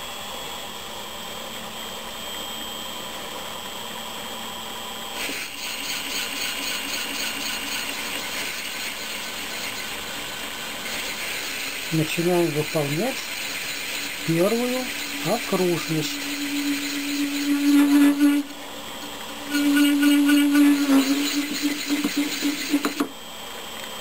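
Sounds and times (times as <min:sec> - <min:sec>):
lathe tool cutting metal: 0:05.2 - 0:23.1
metal lathe humming: 0:05.2 - 0:23.3.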